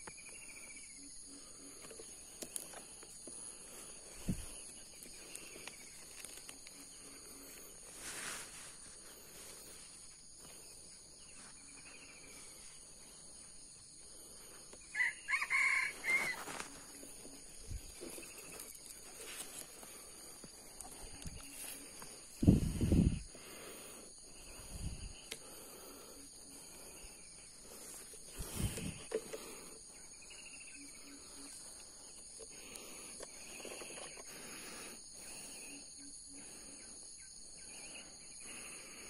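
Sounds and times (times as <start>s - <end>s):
junglefowl crowing: 14.9s - 16.9s.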